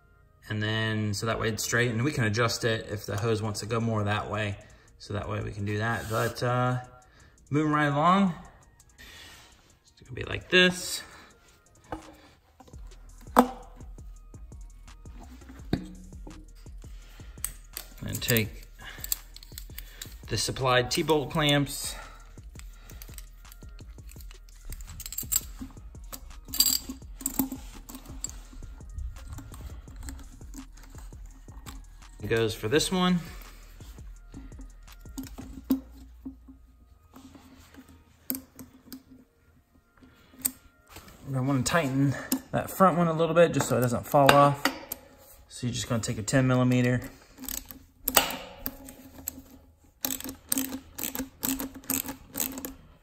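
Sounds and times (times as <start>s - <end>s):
metal hose clamps clinking: 11.8s - 39.2s, 40.0s - 53.0s
ratchet clicking: 15.8s - 32.6s, 33.4s - 35.8s, 47.4s - 52.8s.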